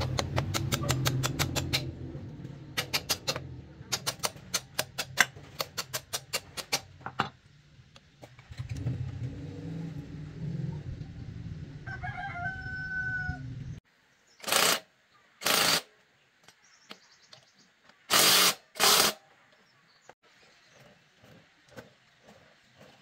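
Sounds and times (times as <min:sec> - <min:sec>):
rapid clicking of wheel hub: 0:00.0 - 0:01.9
low hum: 0:00.0 - 0:04.4, 0:07.4 - 0:12.0.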